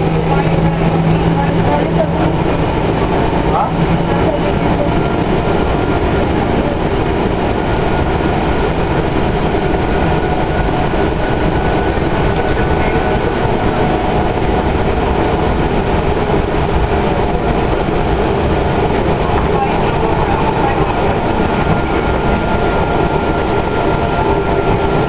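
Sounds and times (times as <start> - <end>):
faint steady whine: 0.0 - 25.0
rail car rolling noise: 0.0 - 25.0.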